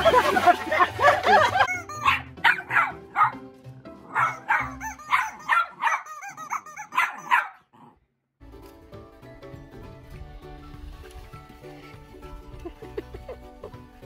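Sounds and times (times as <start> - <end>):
background music: 0.0 - 7.4, 8.4 - 14.0
small dog yapping: 1.7 - 3.4, 4.1 - 7.9.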